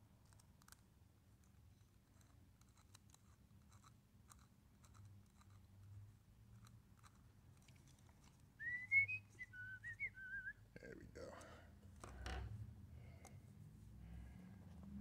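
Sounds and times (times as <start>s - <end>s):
screwdriver clicks and scratches: 1.4s - 5.7s
person whistling a tune: 8.6s - 10.6s.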